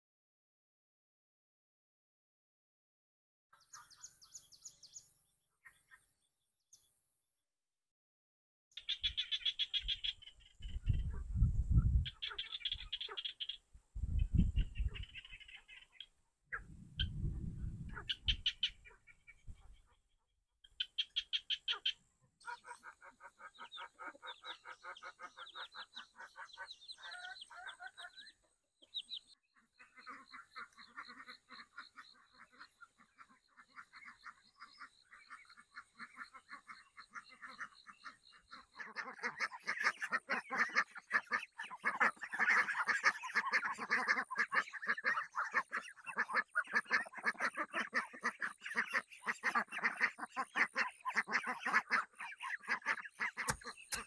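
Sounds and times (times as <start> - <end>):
ducks quacking: 8.8 - 13.6, 14.3 - 17.2, 17.8 - 20.1, 20.8 - 54.0.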